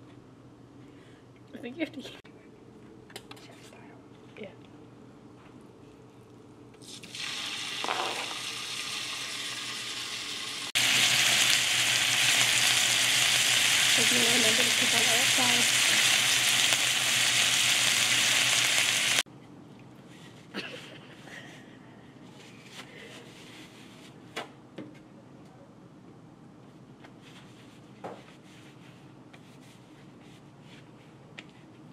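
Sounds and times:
chicken sizzling in oil: 7.0s - 19.2s.

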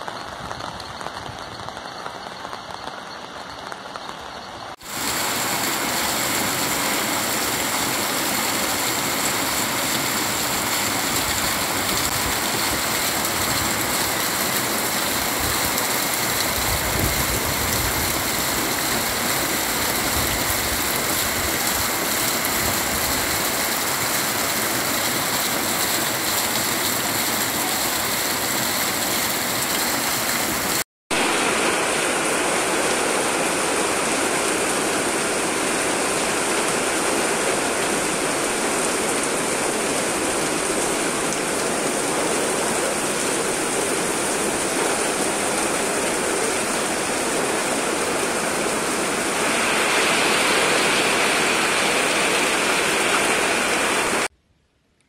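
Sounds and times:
steady heavy rain: 0.0s - 54.3s
water gushing into plastic barrel: 4.8s - 30.8s.

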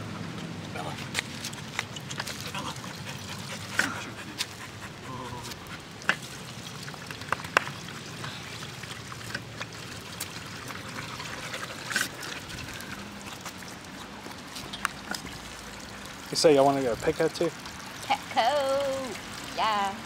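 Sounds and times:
dog lapping water: 1.4s - 18.2s
water trickling into steel bowl: 5.3s - 20.0s.

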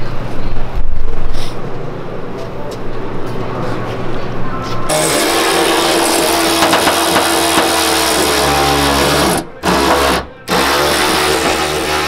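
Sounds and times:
power ratchet running: 4.9s - 12.0s.

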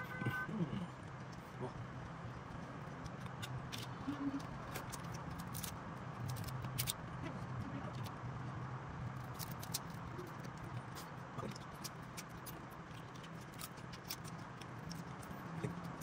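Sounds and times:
crab shells cracking: 2.0s - 7.0s, 9.2s - 16.0s.

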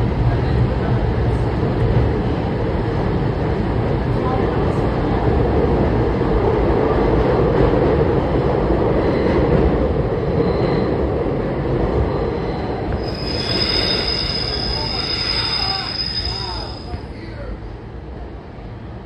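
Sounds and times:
subway train rumbling in tunnel: 0.0s - 19.0s
train wheels squealing: 12.2s - 17.4s.

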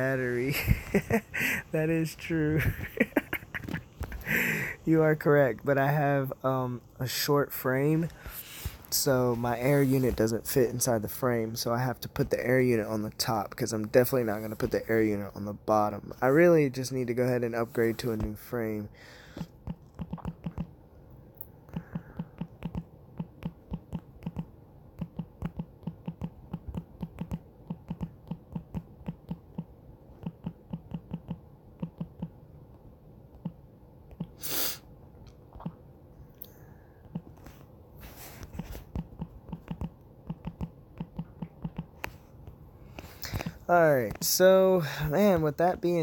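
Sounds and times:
fingers tapping touchscreen: 19.4s - 20.8s, 21.7s - 32.4s, 37.0s - 37.6s, 38.4s - 44.2s.

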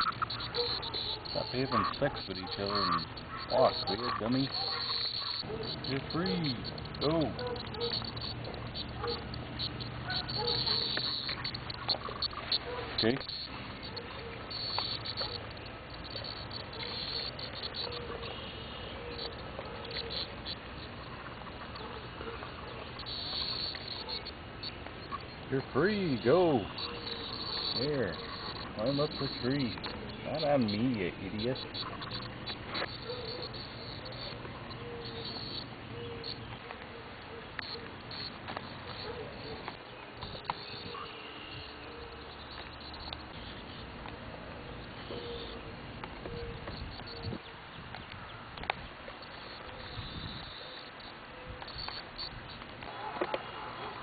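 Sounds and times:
cicadas buzzing: 0.0s - 54.0s.

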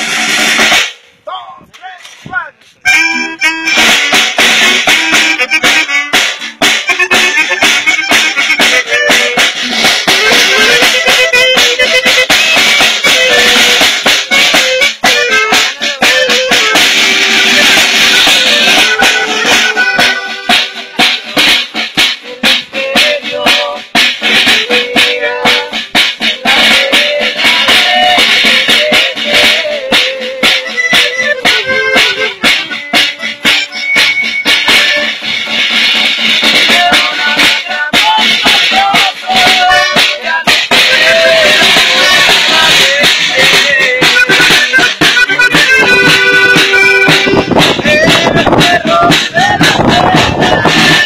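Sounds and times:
snare drum hits: 0.0s - 1.0s, 3.7s - 51.0s
accordion: 2.6s - 51.0s
saxophone: 2.8s - 21.3s, 26.4s - 35.3s, 39.5s - 51.0s
strummed guitar chords: 40.9s - 51.0s.

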